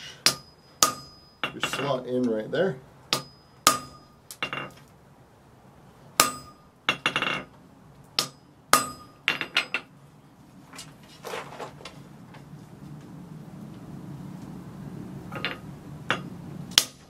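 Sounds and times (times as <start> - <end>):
hammer striking metal punch: 0.2 - 2.0, 3.1 - 4.8, 6.2 - 7.5, 8.2 - 9.9.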